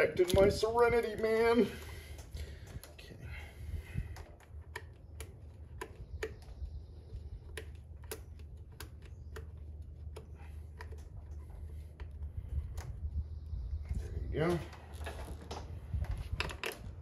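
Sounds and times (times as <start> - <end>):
light clicks and taps of hand tools: 4.1 - 12.9.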